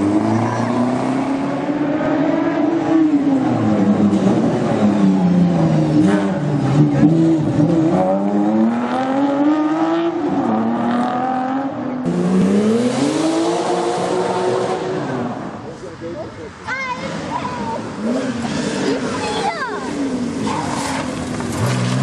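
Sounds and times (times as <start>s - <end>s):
rally car accelerating hard: 0.0s - 15.6s, 17.1s - 22.0s
sports car accelerating away: 0.0s - 15.6s.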